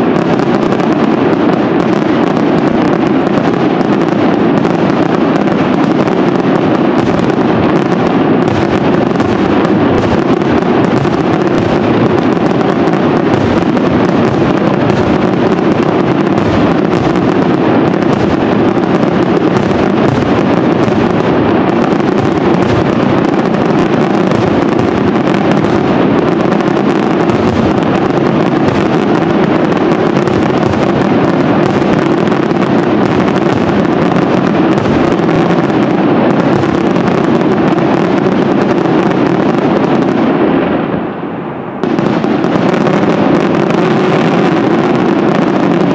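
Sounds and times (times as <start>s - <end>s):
fireworks bursting: 0.0s - 45.9s.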